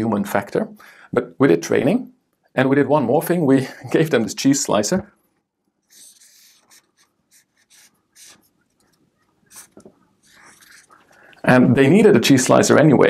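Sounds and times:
marker scratching on paper: 5.8s - 11.0s.

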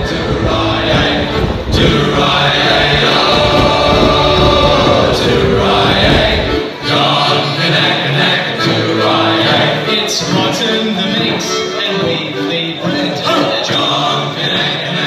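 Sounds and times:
low rumble: 0.0s - 6.6s
music with choir singing: 0.0s - 15.0s.

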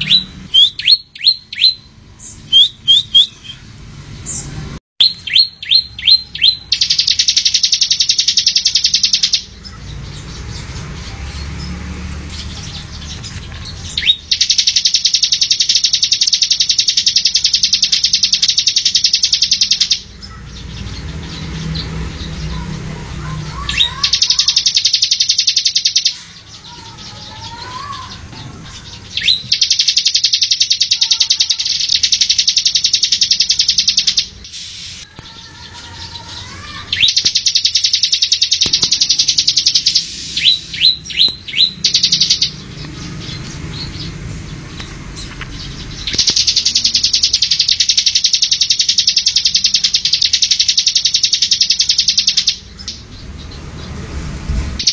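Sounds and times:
bird singing fast trills: 0.0s - 54.2s
sharp rising bird notes: 0.0s - 54.9s.

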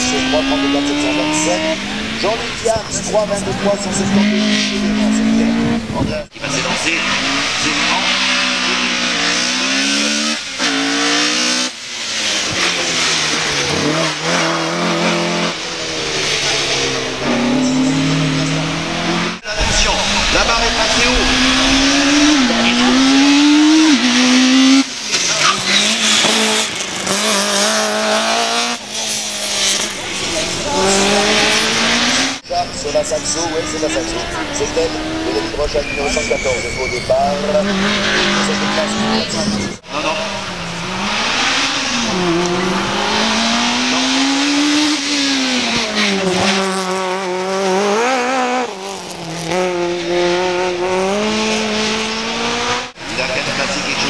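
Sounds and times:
race car engine accelerating: 0.0s - 54.0s
tyres squealing on asphalt: 22.7s - 46.8s.

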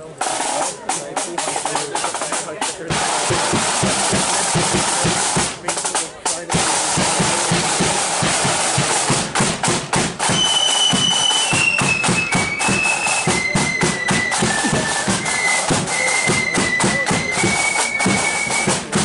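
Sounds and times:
marching drums beat: 0.0s - 19.0s
shrill flutes playing a tune: 10.2s - 19.0s.

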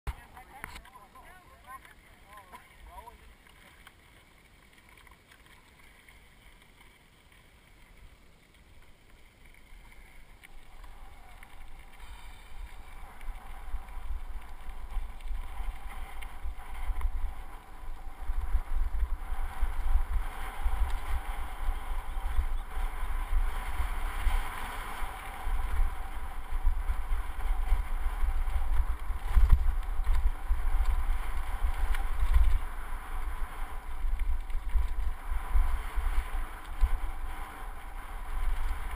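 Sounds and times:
wind rumbling on microphone: 9.4s - 38.9s.

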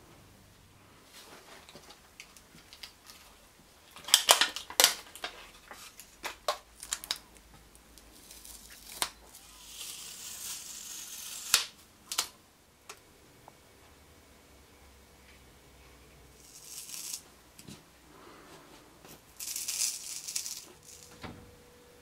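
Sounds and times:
plastic wrap crackling: 1.5s - 12.3s, 19.2s - 21.1s
tape tearing: 3.9s - 7.2s, 8.1s - 12.3s, 19.4s - 21.1s.

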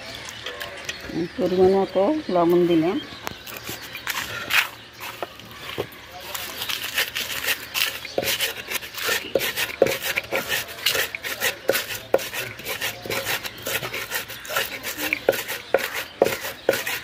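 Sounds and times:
gritty scraping on stone: 3.4s - 17.0s
pestle knocking on grinding stone: 7.8s - 17.0s.

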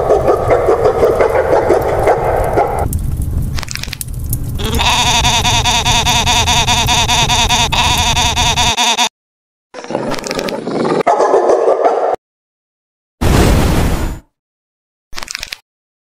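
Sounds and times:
low rumble: 2.8s - 4.9s
goat-like bleat: 4.6s - 9.1s.

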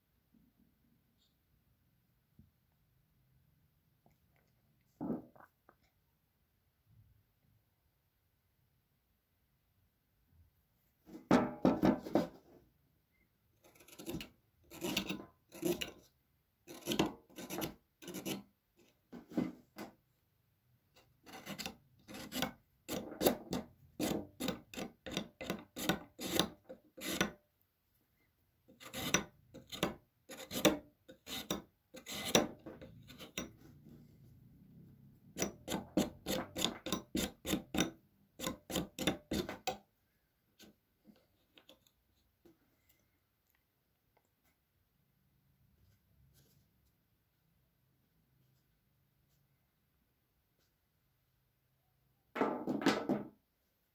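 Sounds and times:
knife cutting carrot: 16.7s - 18.4s, 21.3s - 27.4s.

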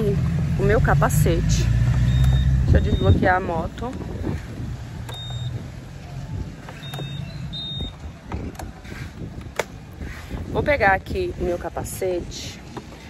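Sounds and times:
alarm beeps: 2.0s - 3.4s, 5.1s - 5.6s, 6.7s - 8.0s.

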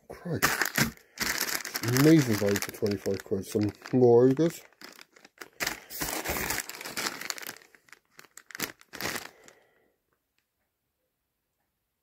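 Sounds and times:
plastic bag crinkling: 0.4s - 9.7s.

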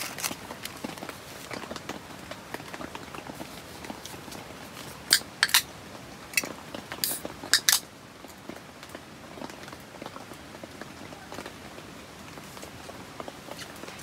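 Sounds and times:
beer cans clinking: 5.1s - 5.6s, 6.4s - 7.8s.

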